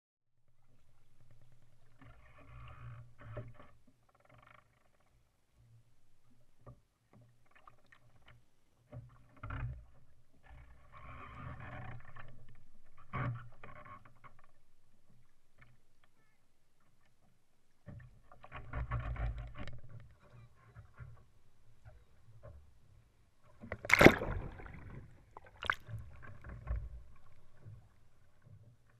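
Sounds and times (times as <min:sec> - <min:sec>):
water sloshing against kayak hull: 0:05.6 - 0:28.9.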